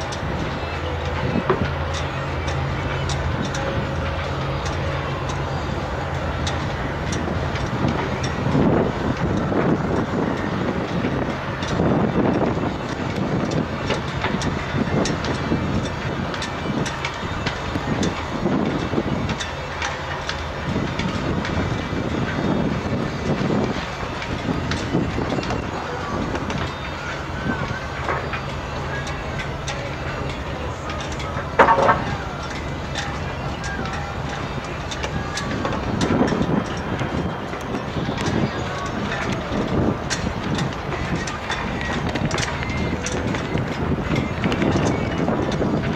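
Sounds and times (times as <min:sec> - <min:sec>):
diesel engines droning: 0:00.0 - 0:45.9
wind buffeting microphone: 0:00.0 - 0:45.9.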